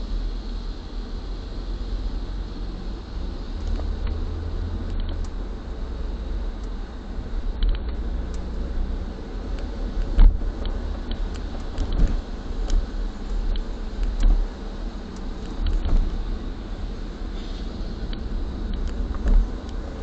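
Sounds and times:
car road noise rumble: 0.0s - 20.0s
car bump: 11.8s - 12.8s
tyre hiss: 16.0s - 19.8s.

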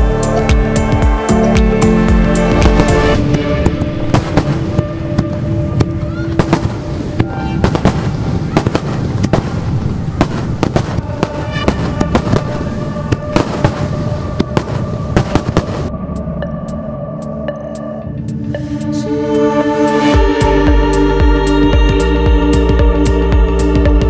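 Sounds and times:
background music: 0.0s - 24.0s
fireworks bangs and crackles: 2.5s - 15.9s.

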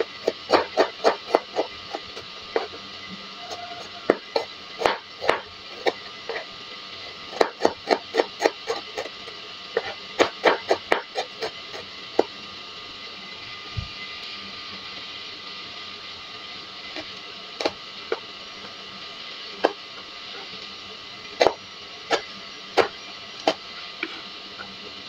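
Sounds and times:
knife chopping on plastic board: 0.0s - 1.7s, 4.1s - 6.0s, 7.4s - 9.1s, 9.8s - 11.5s.

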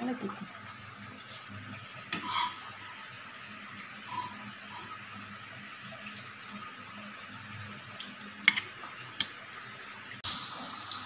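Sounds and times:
spoon clinking on steel bowl: 8.5s - 9.4s.

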